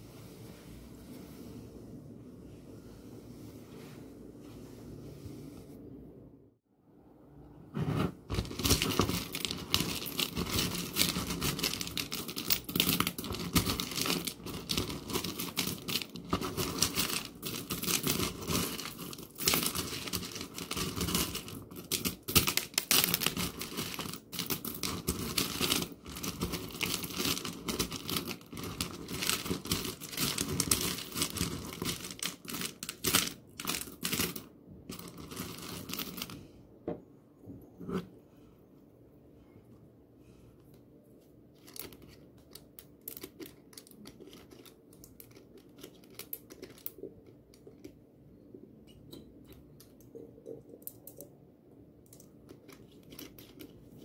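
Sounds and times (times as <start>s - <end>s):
plastic cup crinkling: 8.3s - 36.4s, 41.5s - 48.0s, 52.1s - 54.0s.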